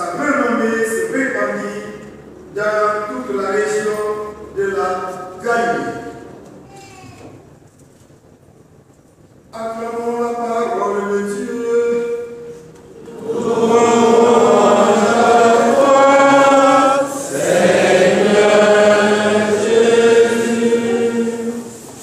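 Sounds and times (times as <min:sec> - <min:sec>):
choir chanting: 0:13.0 - 0:21.9.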